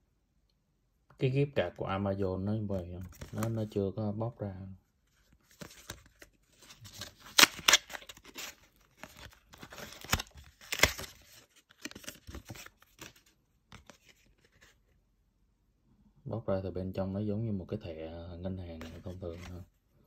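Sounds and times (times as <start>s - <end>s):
paperboard packaging tearing: 5.6s - 13.2s.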